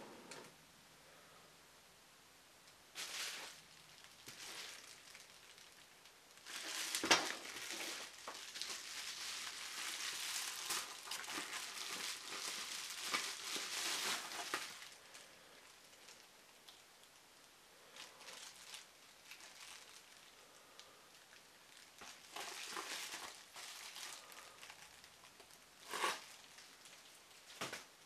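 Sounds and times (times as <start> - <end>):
bubble wrap crinkling: 2.9 - 28.0
bubble wrap snap: 6.4 - 15.0, 27.5 - 27.9.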